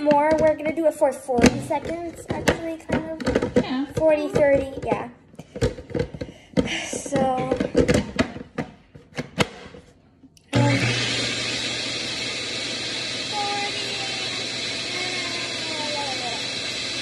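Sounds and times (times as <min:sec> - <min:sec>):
electric mixer humming: 0:10.5 - 0:17.0.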